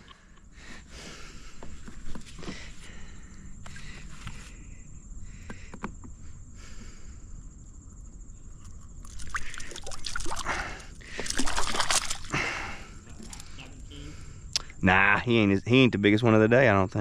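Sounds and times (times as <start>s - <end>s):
fish splashing in water: 9.0s - 12.6s.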